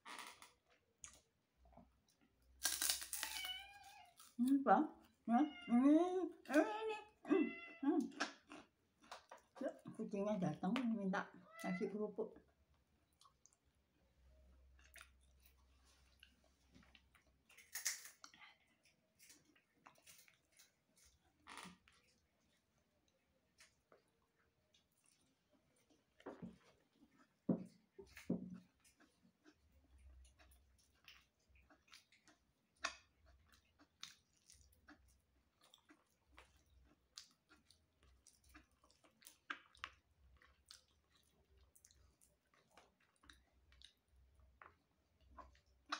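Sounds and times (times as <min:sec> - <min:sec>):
chewing: 0:08.0 - 0:10.0, 0:12.5 - 0:13.8, 0:14.6 - 0:45.9.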